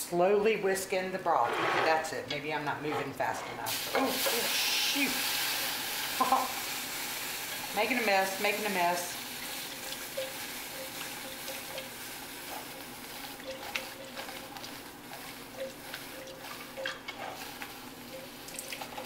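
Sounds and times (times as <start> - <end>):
liquid sizzling in saucepan: 3.7 - 19.0
whisk clicking against pan: 9.8 - 19.0.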